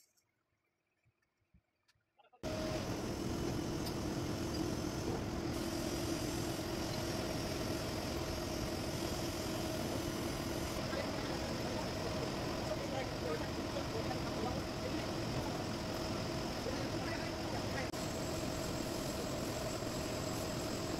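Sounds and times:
metal lathe running: 2.4s - 20.9s.

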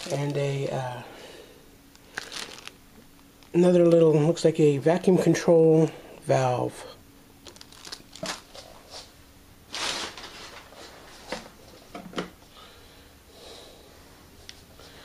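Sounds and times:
packaging rustling: 0.0s - 0.6s, 1.9s - 3.6s, 7.4s - 9.0s, 9.7s - 11.3s
plastic bag being handled: 0.0s - 0.7s, 1.9s - 2.8s, 7.4s - 9.0s, 9.7s - 11.2s.

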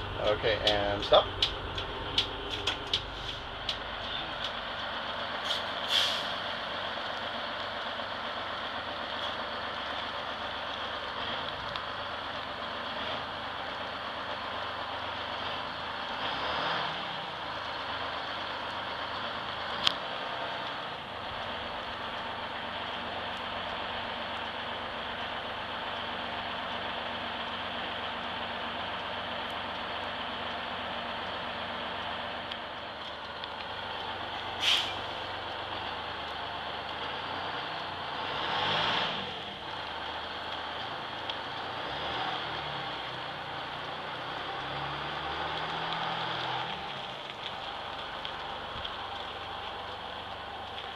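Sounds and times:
bus diesel engine running: 0.0s - 50.9s
air brake hiss: 5.5s - 6.4s, 34.6s - 35.0s.

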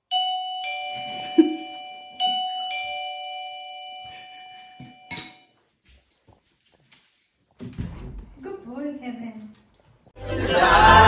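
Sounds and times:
two-note doorbell chime: 0.1s - 5.4s.

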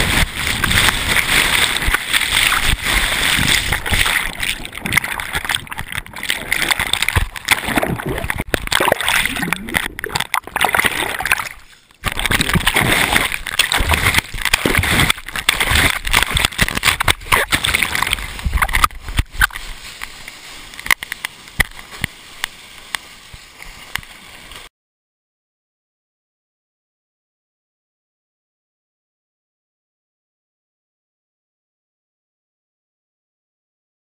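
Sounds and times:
surf water splashing and churning: 0.0s - 24.7s.

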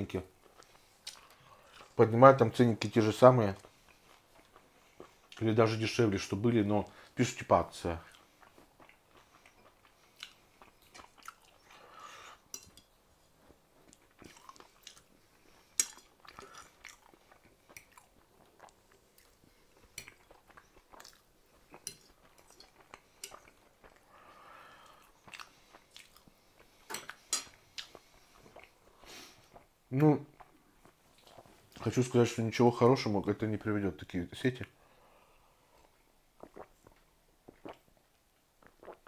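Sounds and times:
close chewing and biting: 8.0s - 11.7s, 13.8s - 24.1s, 25.2s - 27.2s.

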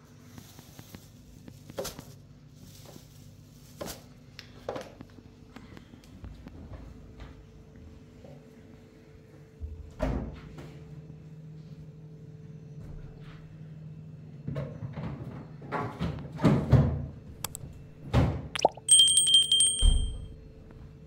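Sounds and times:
low steady hum: 17.3s - 20.4s.

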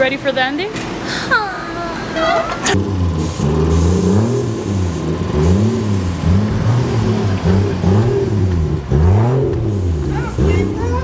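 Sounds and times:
car engine revving: 2.2s - 11.0s.

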